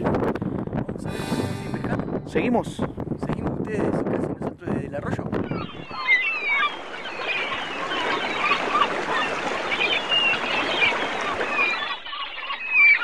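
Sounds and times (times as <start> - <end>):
birds chirping chorus: 1.1 - 3.6, 5.3 - 13.0.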